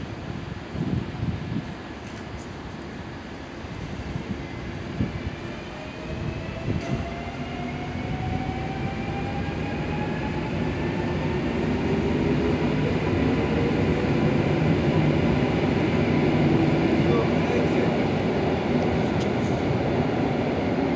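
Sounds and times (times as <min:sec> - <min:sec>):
train rumble: 0:00.0 - 0:20.9.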